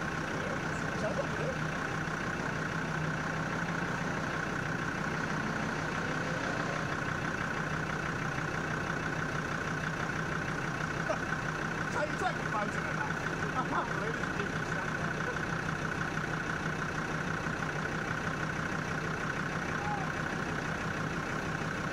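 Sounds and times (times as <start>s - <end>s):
diesel engine idling: 0.0s - 21.9s.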